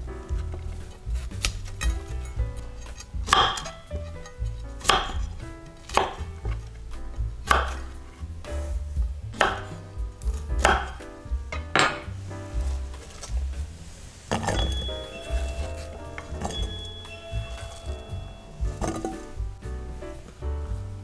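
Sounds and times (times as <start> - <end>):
knife chopping on cutting board: 2.8 - 3.8, 4.8 - 6.6, 7.4 - 7.9, 9.4 - 11.0.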